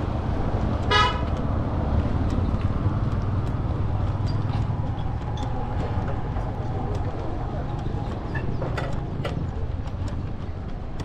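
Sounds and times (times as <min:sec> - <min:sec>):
low street rumble: 0:00.0 - 0:11.0
vehicle horn toot: 0:00.9 - 0:01.3.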